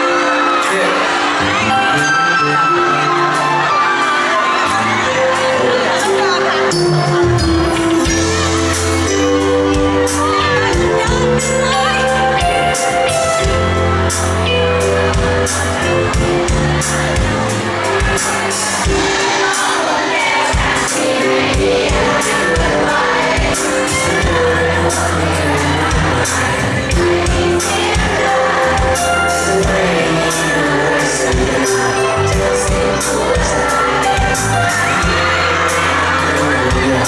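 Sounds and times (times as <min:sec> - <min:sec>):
man singing into a microphone: 0:00.0 - 0:04.0, 0:23.8 - 0:37.0
amplified pop backing music: 0:00.0 - 0:37.0.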